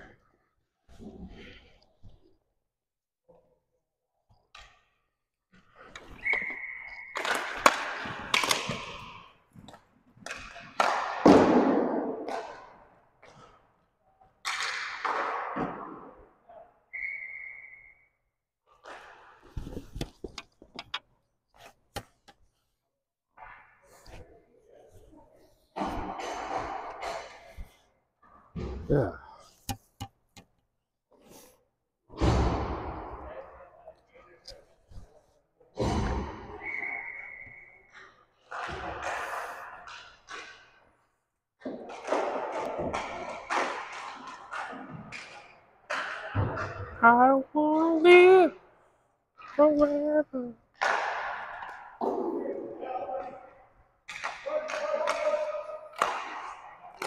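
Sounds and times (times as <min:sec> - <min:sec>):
skates scraping: 0:05.6 - 0:12.5, 0:54.1 - 0:57.0
referee's whistle: 0:06.1 - 0:07.3, 0:16.9 - 0:18.2, 0:36.6 - 0:37.9.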